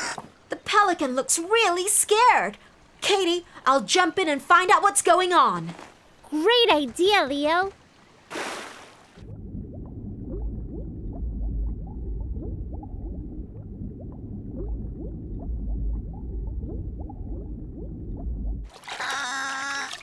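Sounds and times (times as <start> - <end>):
splash of jump into water: 8.3 - 9.0
cartoon underwater bubbling: 9.2 - 20.0.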